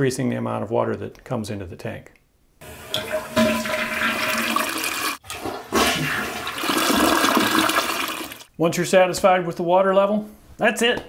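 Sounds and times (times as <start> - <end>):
toilet flushing: 2.6 - 8.5.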